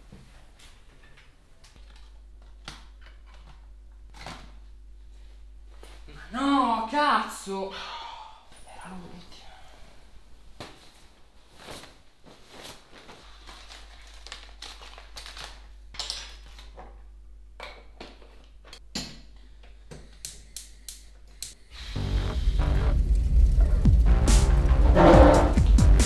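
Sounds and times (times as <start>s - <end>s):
fabric rustling: 10.7s - 14.2s
kitchen objects clicking and clattering: 16.0s - 20.6s
loud music: 21.9s - 26.0s.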